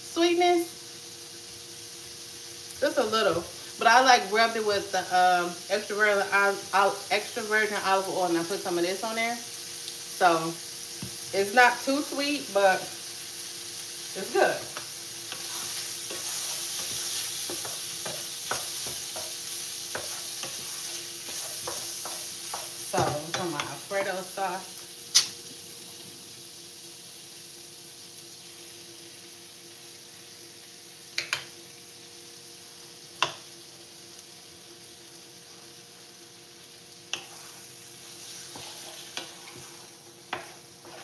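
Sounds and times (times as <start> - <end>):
sausage sizzling in a frying pan: 0.0 - 41.0
wooden spoon scraping a pan: 14.2 - 24.2, 37.1 - 41.0.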